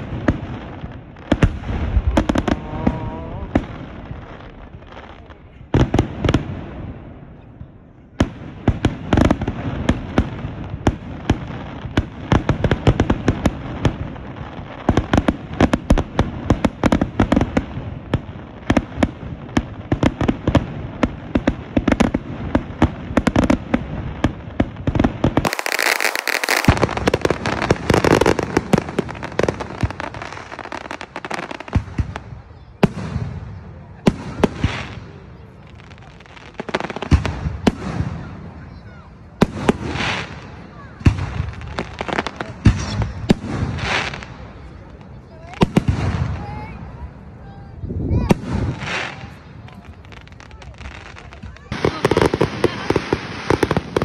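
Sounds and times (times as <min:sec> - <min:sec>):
fireworks bangs and crackles: 0:00.0 - 0:54.0
firework hiss: 0:21.8 - 0:32.2, 0:39.4 - 0:44.8, 0:48.2 - 0:54.0.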